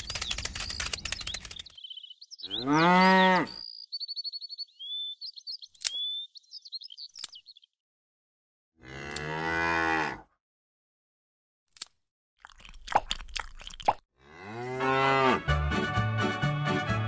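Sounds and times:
sharp clicks: 0.0 - 1.9, 5.7 - 6.1
high bird chirps: 0.0 - 7.8
cow mooing: 2.5 - 3.6, 8.8 - 10.3, 14.2 - 15.5.

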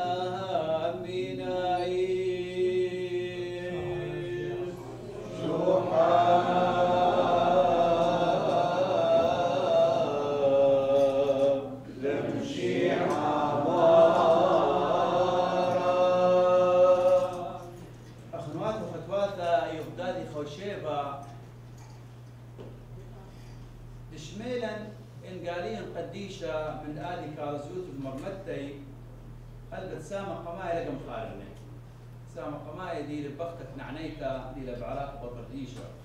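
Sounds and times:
liturgical chant singing: 0.0 - 19.4.

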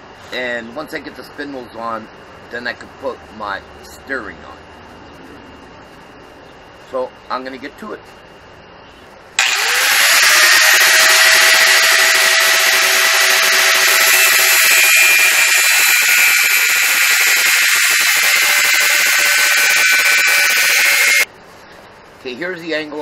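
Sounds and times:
angle grinder whining: 9.4 - 21.3
disc grinding through metal: 9.4 - 21.3.

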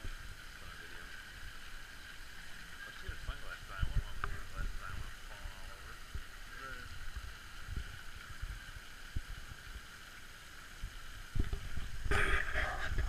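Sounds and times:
watery hiss: 0.0 - 13.0
wind buffeting microphone: 7.0 - 9.6, 10.8 - 13.0.

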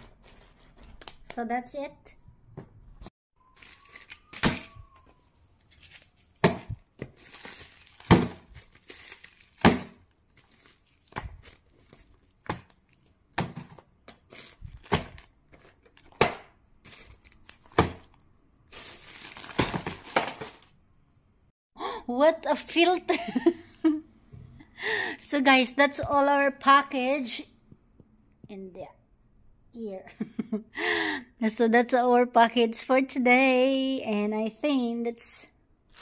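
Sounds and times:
plastic bags crinkling: 3.5 - 4.4, 5.2 - 16.2, 16.8 - 20.8.

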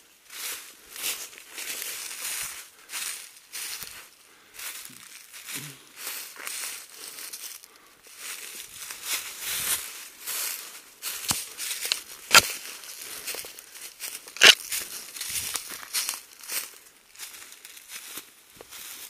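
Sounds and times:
footsteps crunching dry leaves: 0.3 - 19.0
brushing through undergrowth: 8.4 - 19.0
twigs snapping: 11.2 - 12.6, 14.3 - 14.8.

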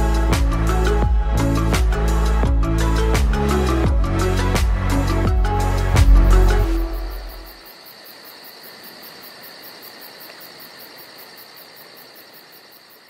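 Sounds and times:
music: 0.0 - 7.6
pulsing insect chirp: 6.2 - 13.0
insect chorus trilling: 6.4 - 13.0.

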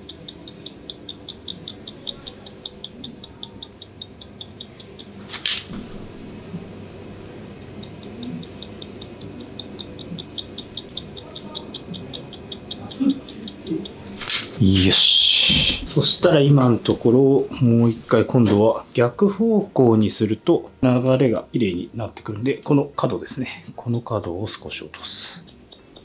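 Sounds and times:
scissors snipping hair: 0.0 - 5.7, 7.8 - 14.8, 23.8 - 26.0.

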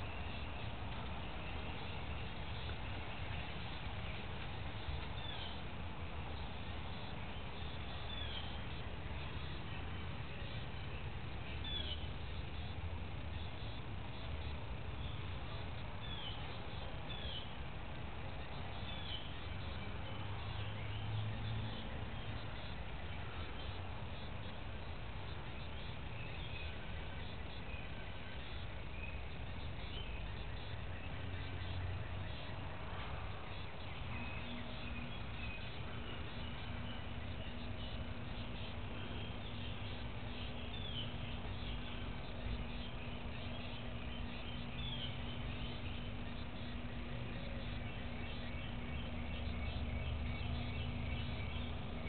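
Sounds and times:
faint steady hum: 0.0 - 52.0
bird chirps: 25.5 - 52.0
steady low rumble: 26.7 - 52.0.

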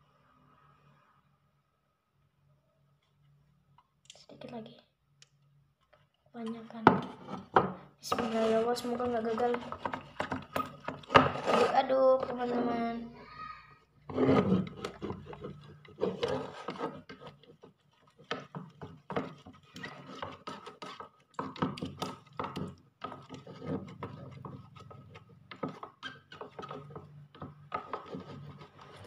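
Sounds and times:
wooden stick scraping plastic tub: 6.5 - 29.0.

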